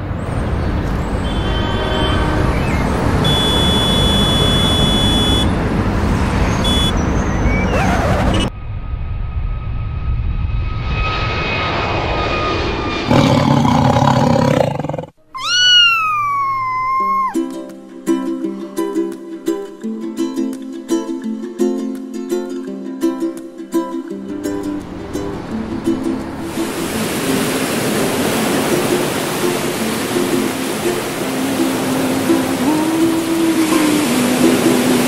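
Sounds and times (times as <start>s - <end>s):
dense city traffic: 0.0s - 8.6s, 24.3s - 35.0s
car horns honking: 1.0s - 8.0s
animal call rising and falling: 7.4s - 8.5s, 13.0s - 17.4s.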